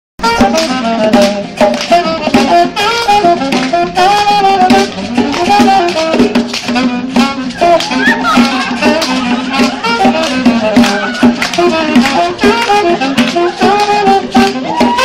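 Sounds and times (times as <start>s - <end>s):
upbeat dance music: 7.5s - 9.9s.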